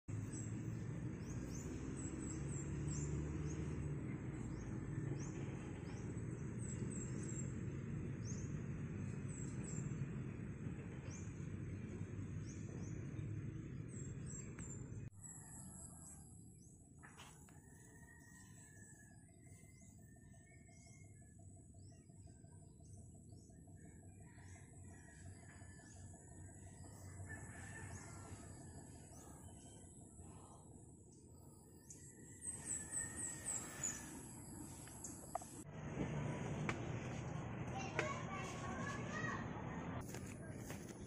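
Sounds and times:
bird chirping: 0:12.4 - 0:35.6.

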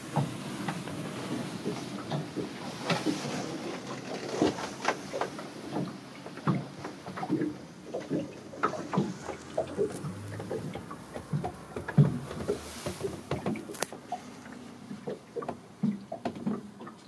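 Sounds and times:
knocks and clicks of movement: 0:08.0 - 0:14.2
steady low rumble: 0:08.4 - 0:15.0.

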